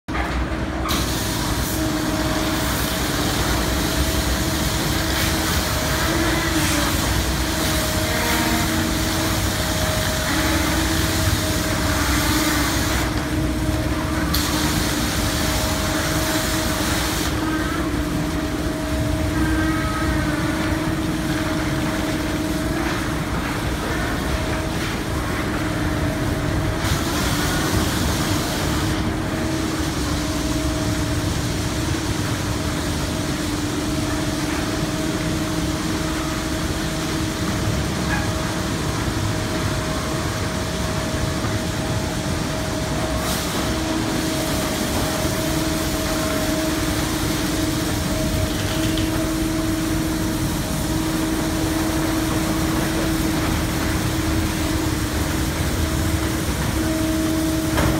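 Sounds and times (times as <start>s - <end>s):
steady machinery hum: 0.0s - 57.9s
water spraying: 0.8s - 57.9s.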